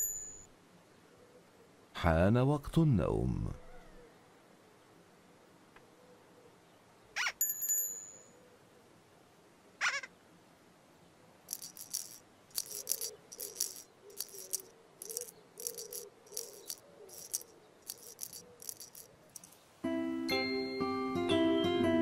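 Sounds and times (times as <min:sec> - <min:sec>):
shaker rattling: 0:11.5 - 0:19.7.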